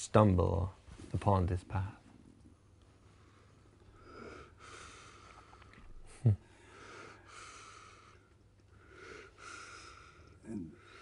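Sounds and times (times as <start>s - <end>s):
soft breathing: 2.8s - 11.0s.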